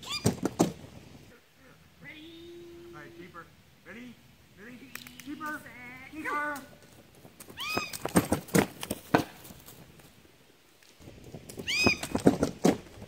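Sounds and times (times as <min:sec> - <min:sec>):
sharp knocks and thumps: 0:00.0 - 0:01.0, 0:07.5 - 0:09.6, 0:11.6 - 0:13.0.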